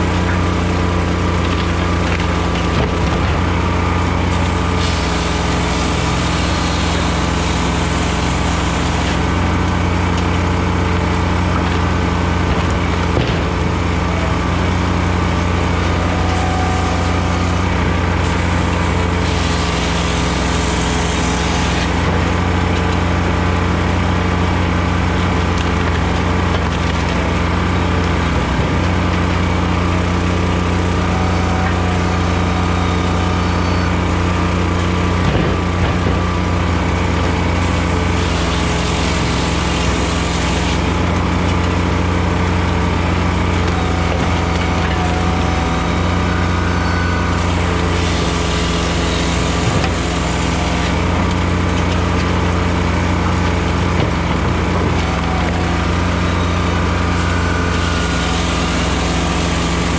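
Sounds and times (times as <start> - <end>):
firewood processor engine running: 0.0 - 59.9
split wood knocking: 35.2 - 36.3.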